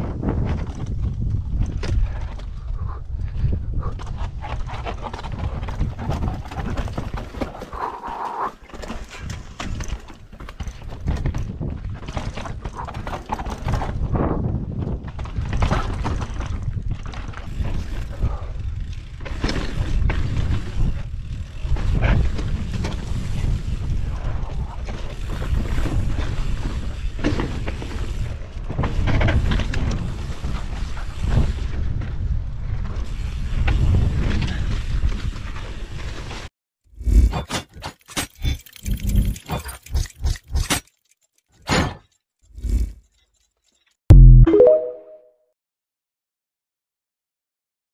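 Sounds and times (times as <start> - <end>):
bike rattling and clattering: 0.0 - 7.7, 8.6 - 44.0
wind rumble on microphone: 0.0 - 7.8, 9.1 - 36.4.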